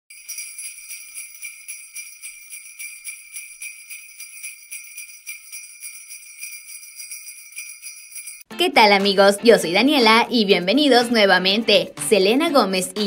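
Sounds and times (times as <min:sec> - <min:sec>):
sleigh bells jingling: 0:00.1 - 0:08.5.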